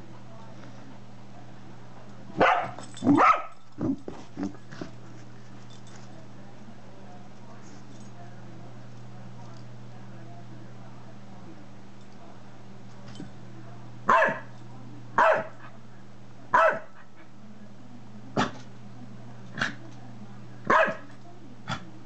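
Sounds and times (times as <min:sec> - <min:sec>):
dog barking: 0:02.4 - 0:03.6, 0:14.1 - 0:14.5, 0:15.2 - 0:15.6, 0:16.5 - 0:17.0, 0:20.7 - 0:21.1.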